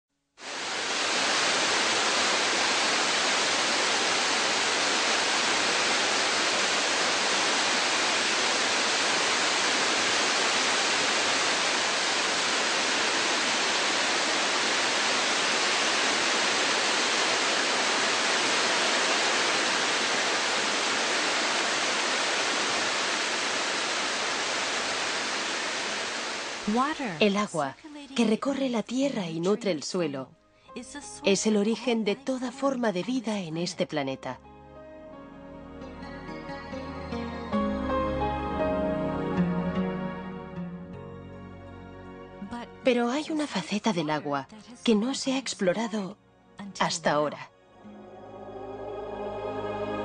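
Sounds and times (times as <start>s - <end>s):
waterfall rushing: 0.4s - 27.2s, 47.9s - 50.0s.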